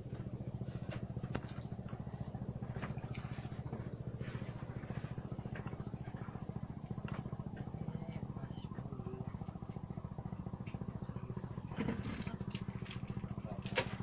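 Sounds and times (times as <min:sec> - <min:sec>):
small engine idling: 0:00.0 - 0:14.0
faint clicks and knocks: 0:00.1 - 0:08.3.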